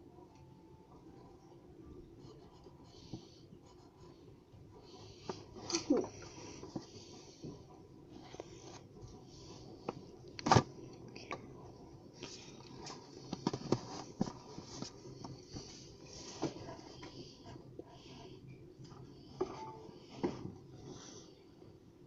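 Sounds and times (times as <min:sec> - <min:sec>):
pencil scratching on paper: 0:02.2 - 0:04.2.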